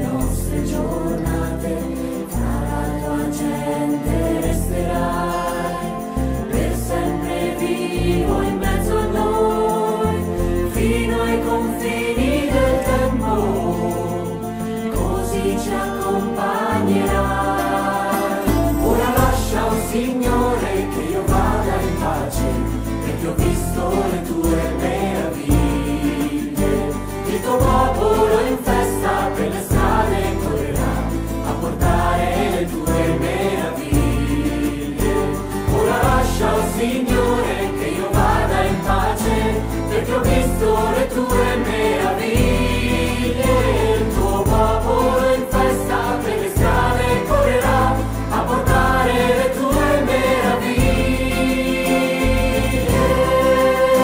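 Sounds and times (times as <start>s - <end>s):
acoustic guitars: 0.0s - 54.0s
group singing: 0.0s - 54.0s
bass line: 17.0s - 54.0s.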